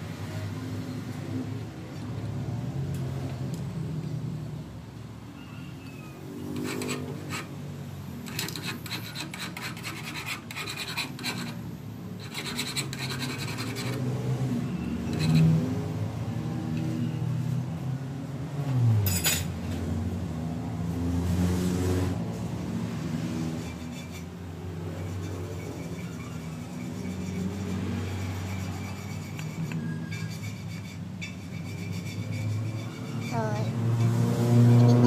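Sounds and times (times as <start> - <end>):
threading die scraping and clicking: 8.2 - 11.6.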